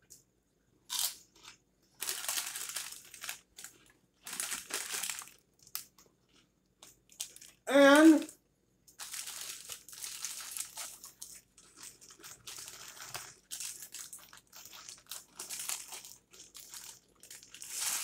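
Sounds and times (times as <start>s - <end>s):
paper wrapper crinkling: 2.0s - 5.9s, 6.8s - 7.6s, 8.9s - 18.0s.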